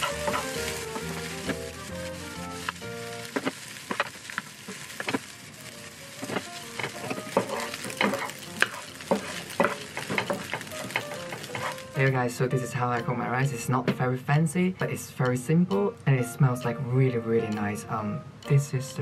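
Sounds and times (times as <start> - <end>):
spatula scraping a pan: 0.0 - 2.0, 6.1 - 12.0
rice sizzling in a pan: 0.0 - 13.4.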